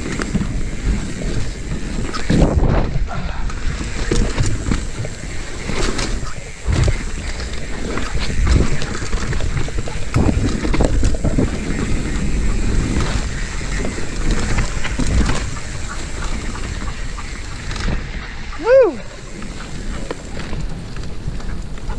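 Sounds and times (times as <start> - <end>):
bike knocks and rattles: 0.0 - 16.9
bike tyres rolling on dirt: 0.0 - 21.9
wind on microphone: 0.0 - 21.9.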